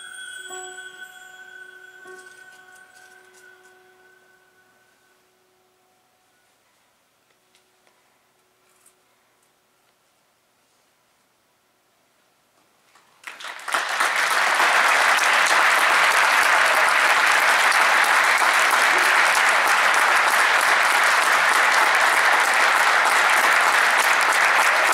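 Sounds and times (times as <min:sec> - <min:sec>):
audience applause: 0:13.2 - 0:24.9.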